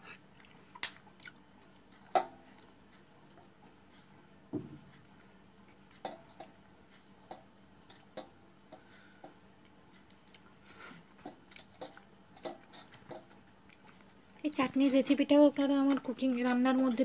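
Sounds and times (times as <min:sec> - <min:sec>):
chewing: 0:09.6 - 0:14.4.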